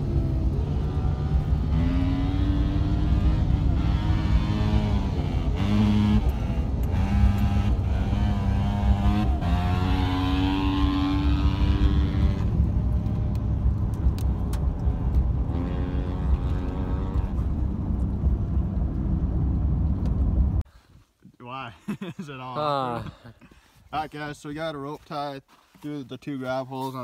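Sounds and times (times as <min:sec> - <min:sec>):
engine and road rumble: 0:00.0 - 0:21.2.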